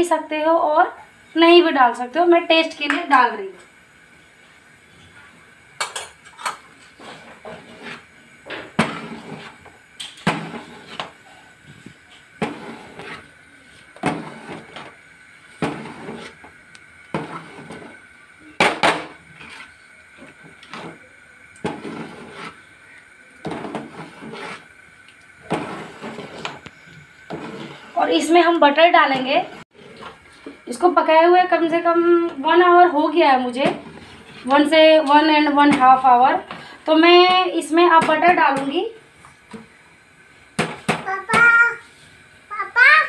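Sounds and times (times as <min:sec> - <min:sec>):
metal spoon scraping a pot: 0:05.9 - 0:08.1, 0:08.8 - 0:11.1, 0:12.4 - 0:13.3, 0:15.6 - 0:16.4, 0:19.3 - 0:21.0, 0:21.6 - 0:22.7, 0:23.4 - 0:24.7, 0:25.4 - 0:28.2.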